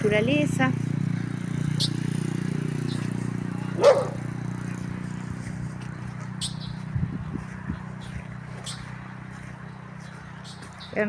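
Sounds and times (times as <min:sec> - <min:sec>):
small motorcycle engine passing: 0:00.0 - 0:11.0
dog barking: 0:03.8 - 0:04.3.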